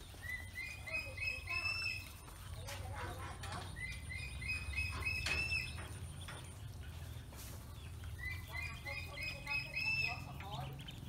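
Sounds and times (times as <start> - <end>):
ducklings peeping: 0.0 - 11.0.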